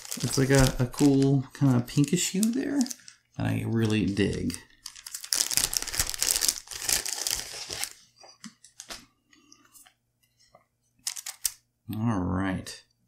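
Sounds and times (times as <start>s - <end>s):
cards clicking and rustling: 0.0s - 3.2s, 11.0s - 11.6s
plastic bag tearing and crinkling: 0.0s - 3.2s, 3.8s - 8.0s.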